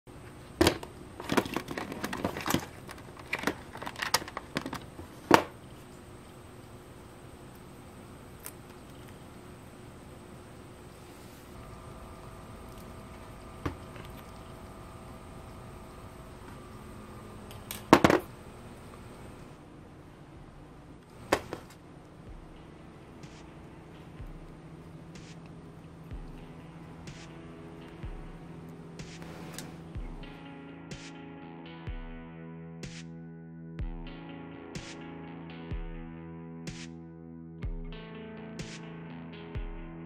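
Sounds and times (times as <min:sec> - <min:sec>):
faint steady hum: 0:00.1 - 0:32.0.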